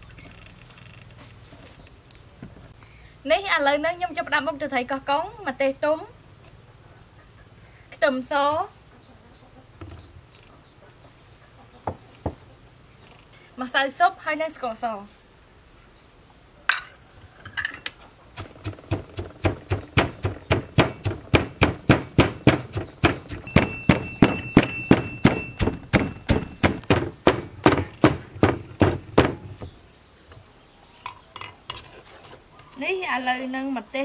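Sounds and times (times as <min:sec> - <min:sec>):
pestle pounding in mortar: 0:18.4 - 0:29.7.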